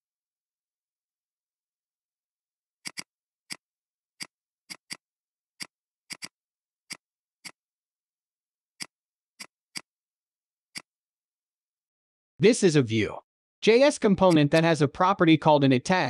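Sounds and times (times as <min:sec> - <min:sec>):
computer mouse clicking: 0:02.8 - 0:03.6, 0:05.6 - 0:07.6, 0:08.8 - 0:09.9.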